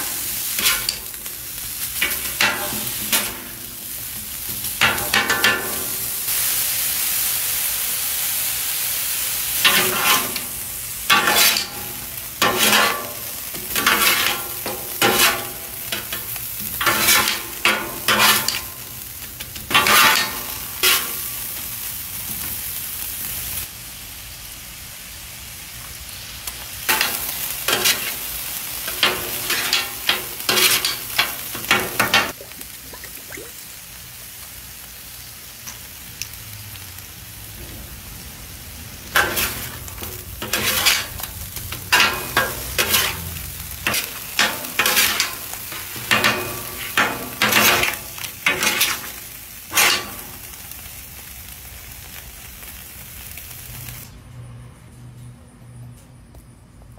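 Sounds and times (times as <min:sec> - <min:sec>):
meat sizzling on a griddle: 0:00.0 - 0:54.2
metal spatulas scraping steel: 0:00.6 - 0:01.0, 0:09.6 - 0:10.5, 0:11.1 - 0:18.7, 0:19.7 - 0:21.2, 0:26.9 - 0:28.2, 0:28.9 - 0:32.2, 0:39.2 - 0:41.3, 0:41.9 - 0:45.4, 0:46.0 - 0:50.2.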